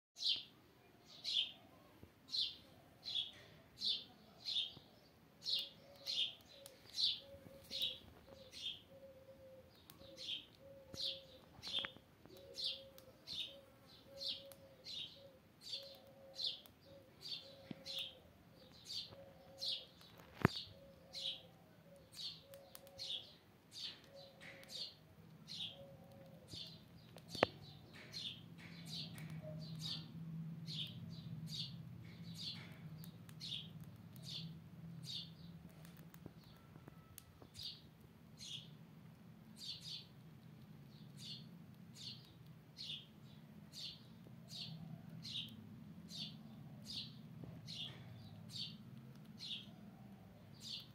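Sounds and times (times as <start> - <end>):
squirrel chirping: 5.4 - 38.8.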